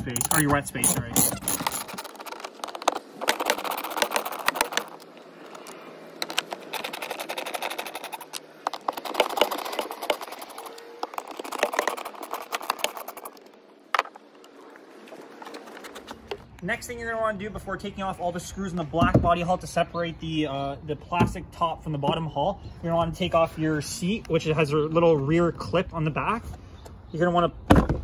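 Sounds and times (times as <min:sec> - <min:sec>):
screwdriver rattling and clicking: 0:00.0 - 0:14.2.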